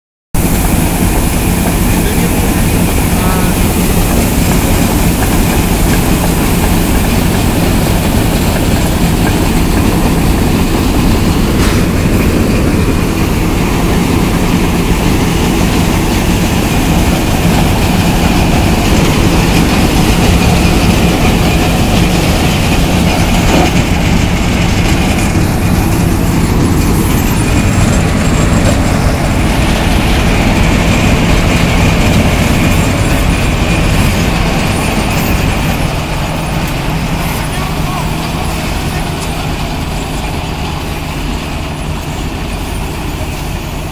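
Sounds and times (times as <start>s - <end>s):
grain pouring into trailer: 0.4s - 33.0s
combine harvester rumbling: 0.4s - 43.9s.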